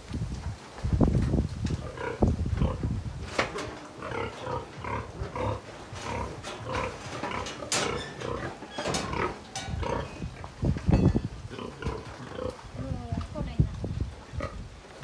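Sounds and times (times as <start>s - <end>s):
pig grunting: 1.8s - 10.3s, 11.5s - 13.0s.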